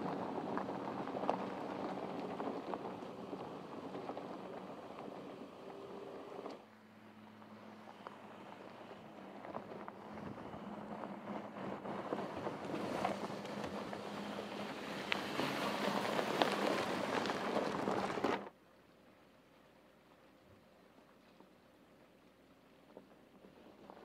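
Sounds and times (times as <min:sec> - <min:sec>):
tyres crunching on gravel: 0:00.0 - 0:06.7, 0:07.4 - 0:18.6
low engine hum: 0:00.0 - 0:18.6.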